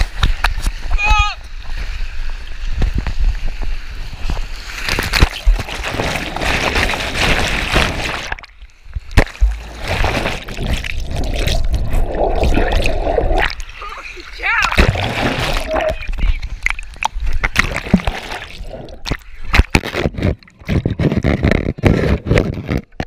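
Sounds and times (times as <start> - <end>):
muffled bubbly underwater noise: 9.2 - 13.9, 14.7 - 22.8.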